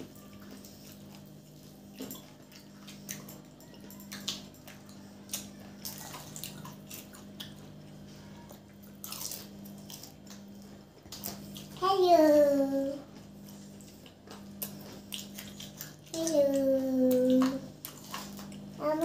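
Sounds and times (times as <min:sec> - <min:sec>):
steady low hum: 0:00.0 - 0:19.0
wet chewing smacks: 0:13.5 - 0:16.2.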